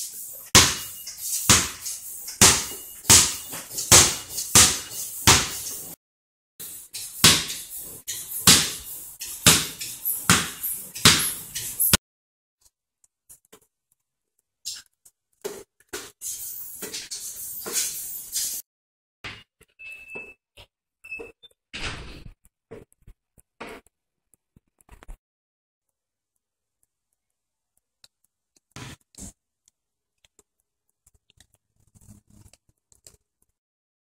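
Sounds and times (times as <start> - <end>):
basketball bouncing on concrete: 0.5 - 1.8, 2.4 - 5.7, 7.2 - 7.7, 8.4 - 11.5.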